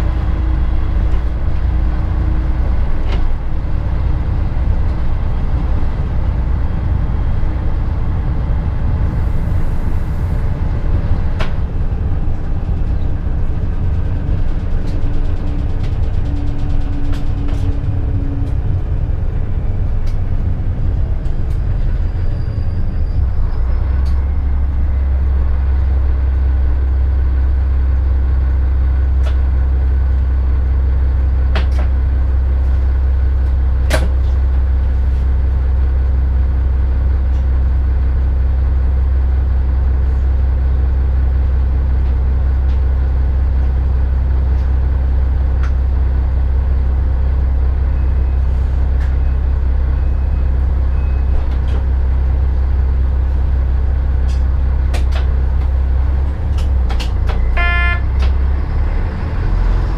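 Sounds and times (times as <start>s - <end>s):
train diesel engine idling: 0.0s - 59.8s.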